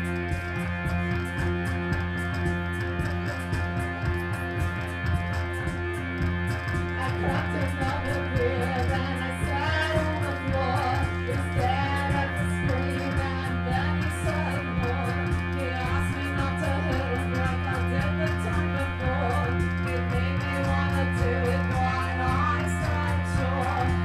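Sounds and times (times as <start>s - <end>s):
electric guitar: 0.0s - 24.0s
keyboard: 0.0s - 24.0s
steady drum beat: 0.0s - 24.0s
woman singing: 7.0s - 24.0s.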